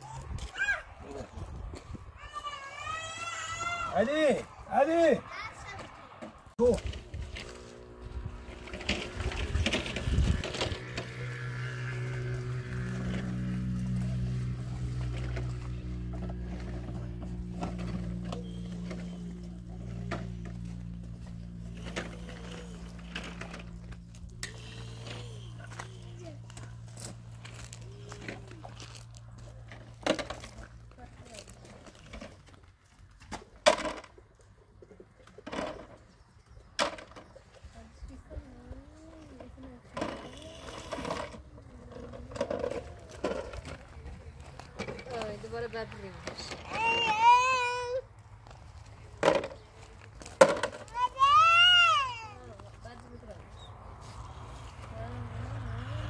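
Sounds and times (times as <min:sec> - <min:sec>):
gravel crunching and clattering: 0:05.7 - 0:34.5, 0:39.2 - 0:47.2, 0:48.2 - 0:55.4.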